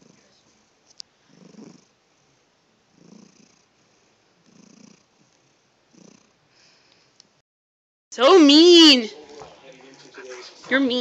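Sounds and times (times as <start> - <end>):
cat snoring softly: 0.0 - 0.6, 1.2 - 6.6.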